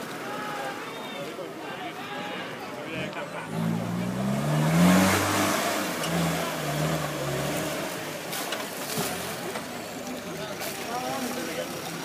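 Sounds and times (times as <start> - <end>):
engine revving hard: 3.4 - 8.2.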